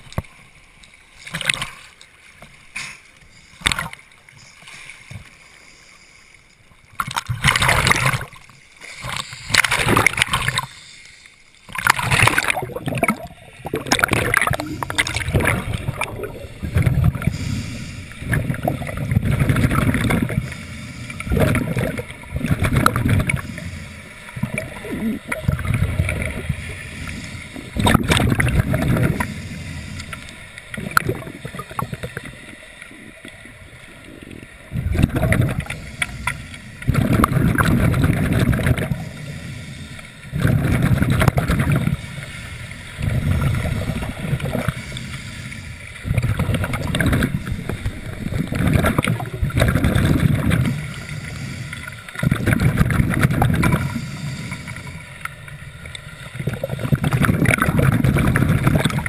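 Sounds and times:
diver exhaling bubbles: 0:11.7 - 0:20.6, 0:21.2 - 0:23.7, 0:24.4 - 0:29.9, 0:30.7 - 0:32.3, 0:34.2 - 0:39.2, 0:40.3 - 0:42.0, 0:43.0 - 0:45.0, 0:46.0 - 0:51.6, 0:52.2 - 0:54.8, 0:56.4 - 0:59.0.

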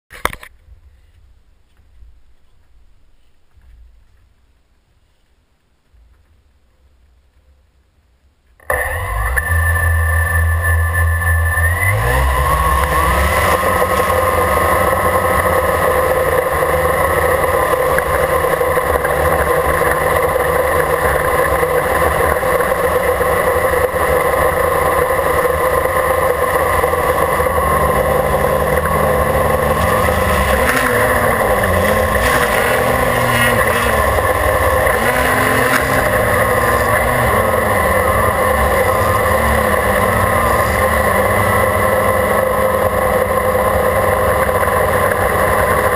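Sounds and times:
drone motors buzzing: 0:08.7 - 0:45.8.

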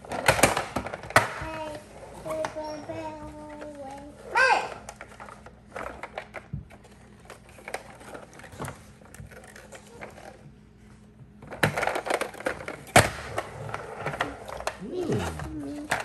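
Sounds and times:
plastic clatter: 0:00.0 - 0:02.6, 0:04.8 - 0:10.5, 0:11.4 - 0:14.8.

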